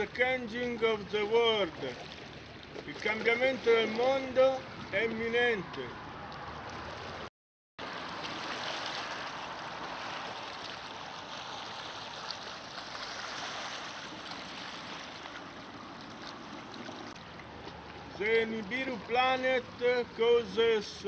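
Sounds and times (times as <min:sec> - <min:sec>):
small waves lapping on pebbles: 0:06.7 - 0:18.2.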